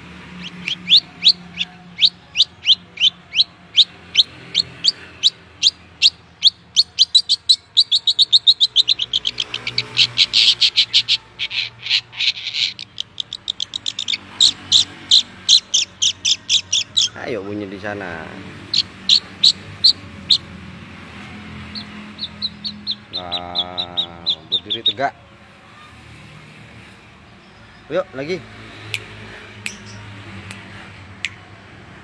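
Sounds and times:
bird singing sharp high notes: 0:21.4 - 0:25.1.

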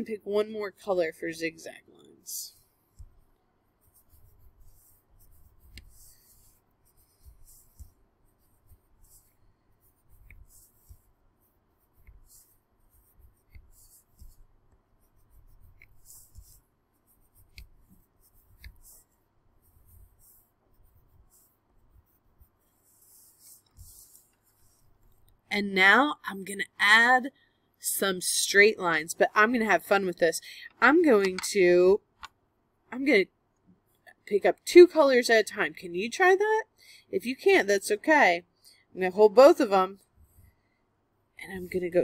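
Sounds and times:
crayon scribbling on paper: 0:00.0 - 0:25.4.

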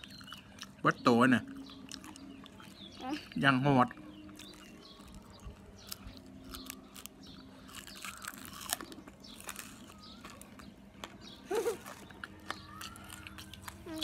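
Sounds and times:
crunchy chewing: 0:00.0 - 0:14.0.

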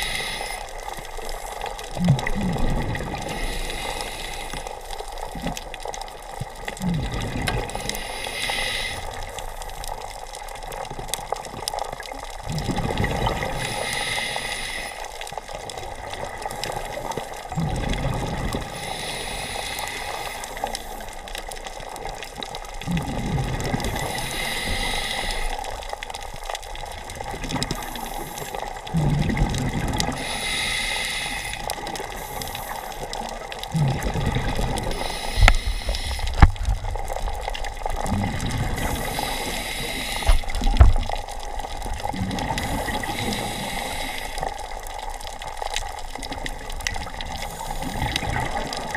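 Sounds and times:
regulator inhale hiss: 0:00.0 - 0:00.8, 0:03.2 - 0:04.9, 0:07.7 - 0:09.3, 0:13.6 - 0:15.2, 0:18.7 - 0:21.1, 0:23.9 - 0:25.6, 0:30.2 - 0:33.2, 0:34.9 - 0:36.6, 0:38.8 - 0:40.6, 0:42.6 - 0:44.6
exhaled bubbles rushing: 0:01.8 - 0:03.4, 0:06.2 - 0:07.8, 0:10.8 - 0:13.8, 0:15.7 - 0:18.8, 0:22.0 - 0:24.2, 0:26.7 - 0:30.2, 0:31.6 - 0:43.8, 0:44.4 - 0:48.9.

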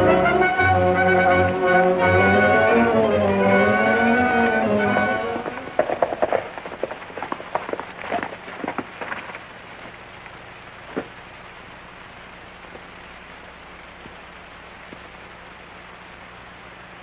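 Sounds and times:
film soundtrack hiss: 0:00.0 - 0:17.0
horses' hooves clattering: 0:04.9 - 0:11.3.

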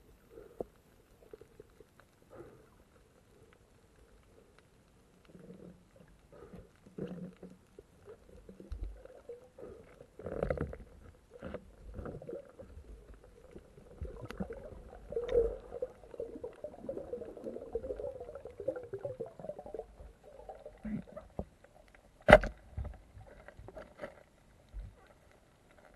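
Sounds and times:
muffled underwater gurgling: 0:05.4 - 0:21.4.

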